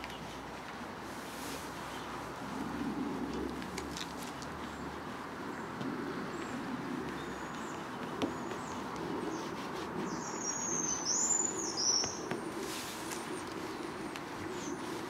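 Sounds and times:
steady background noise: 0.0 - 15.0
small bird chirping: 10.0 - 12.3.

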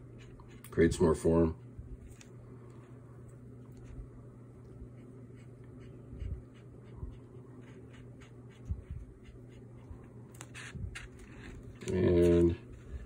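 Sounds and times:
pen scratching on paper: 4.9 - 13.0.

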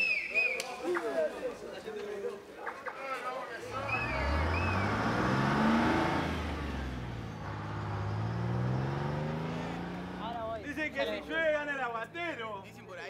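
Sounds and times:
truck engine accelerating: 3.7 - 12.2.

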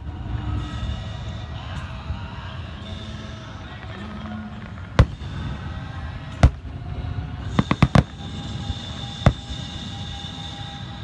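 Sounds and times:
fireworks bursting with bangs: 4.7 - 5.7, 6.3 - 6.8, 7.5 - 9.9.

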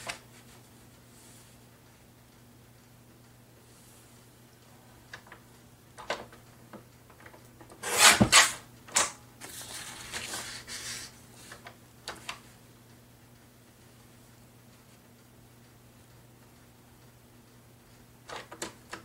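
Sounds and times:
paper rustling: 9.4 - 11.7.

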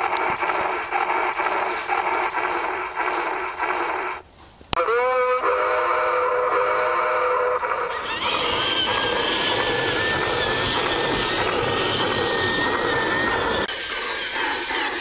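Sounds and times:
high whine: 0.0 - 4.2, 7.5 - 15.0
model train running past: 0.0 - 4.2, 4.9 - 15.0
chime steam whistle: 4.8 - 8.2.

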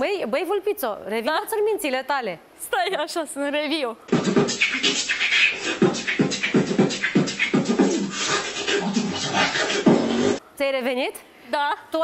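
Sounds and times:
woman beatboxing: 4.1 - 10.4.

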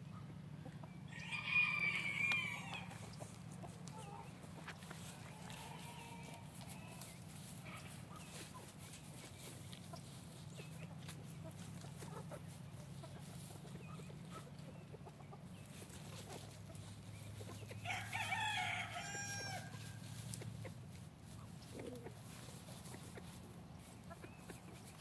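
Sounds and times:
chickens clucking softly: 0.0 - 25.0
rooster crowing: 1.1 - 3.0, 5.1 - 6.7, 17.8 - 20.0.

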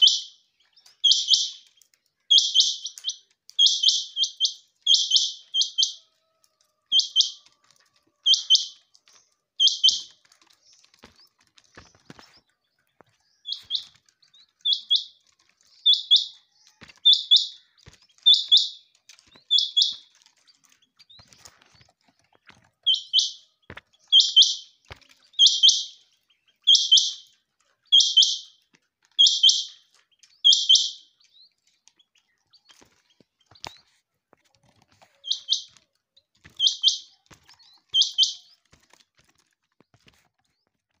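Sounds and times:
quail calling: 0.0 - 0.4, 1.0 - 1.7, 2.3 - 7.6, 8.2 - 8.9, 9.6 - 10.2, 13.4 - 15.2, 15.8 - 18.8, 19.4 - 20.0, 22.8 - 24.8, 25.4 - 26.0, 26.6 - 27.3, 27.9 - 28.6, 29.2 - 29.8, 30.4 - 31.1, 35.2 - 35.8, 36.4 - 38.5.

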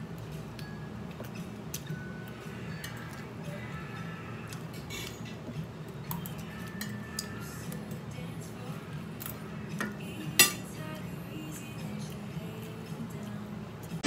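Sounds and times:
cutlery clinking on plate: 9.8 - 10.7.

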